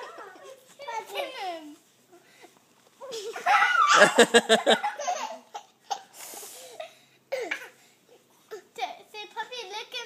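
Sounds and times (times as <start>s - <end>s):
toddler laughing: 3.0s - 6.1s.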